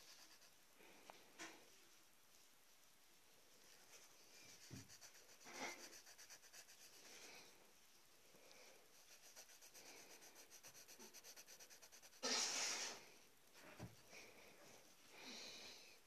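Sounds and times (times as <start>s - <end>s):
pencil scribbling on paper: 0.0s - 0.6s, 3.9s - 7.3s, 8.9s - 12.6s.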